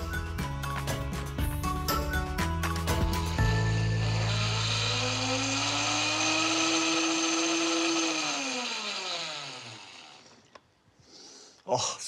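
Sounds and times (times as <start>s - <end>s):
blender whining: 2.7s - 10.6s.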